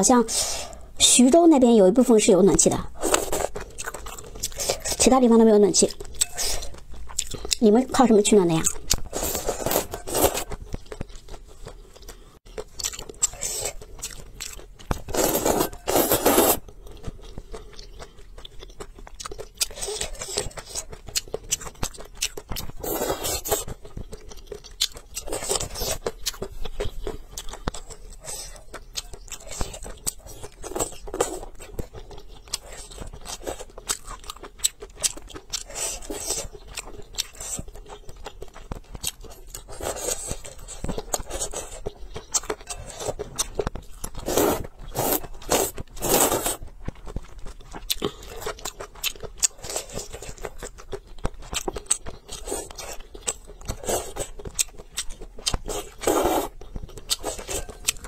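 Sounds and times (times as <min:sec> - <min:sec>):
wet chewing: 0:02.6 - 0:58.0
slurping noodles: 0:09.1 - 0:10.5, 0:15.1 - 0:16.6, 0:22.8 - 0:23.6, 0:44.2 - 0:46.6, 0:55.7 - 0:56.6.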